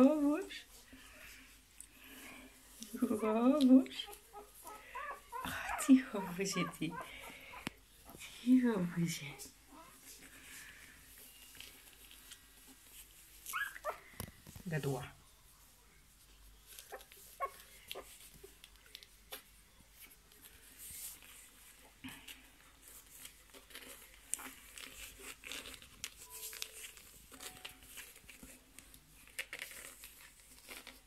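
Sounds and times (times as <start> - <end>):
puppies rustling on blanket: 0.0 - 31.0
puppy squeaks: 4.0 - 7.3, 13.5 - 14.0.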